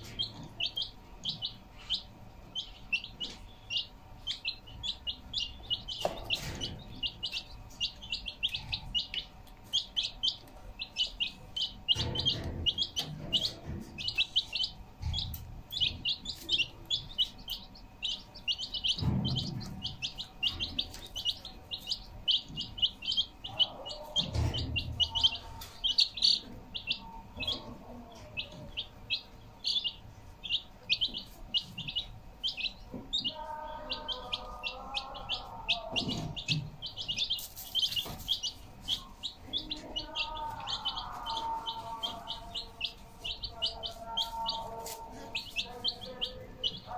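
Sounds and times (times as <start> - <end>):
baby chicks peeping: 0.0 - 46.9.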